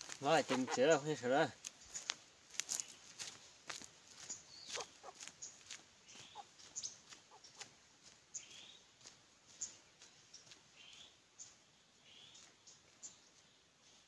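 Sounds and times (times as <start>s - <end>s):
footsteps on dirt road: 0.0s - 14.0s
chicken clucking: 0.2s - 1.2s, 4.6s - 7.8s.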